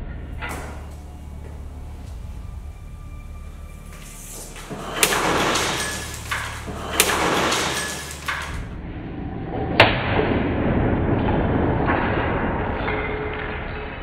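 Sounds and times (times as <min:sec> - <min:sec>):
rush of noise: 0:00.0 - 0:13.1
guillotine blade striking block: 0:05.0 - 0:08.7.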